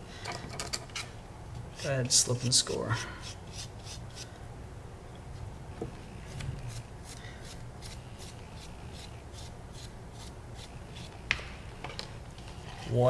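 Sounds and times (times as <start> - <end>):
rib scratching clay: 1.8 - 4.3, 6.2 - 11.2.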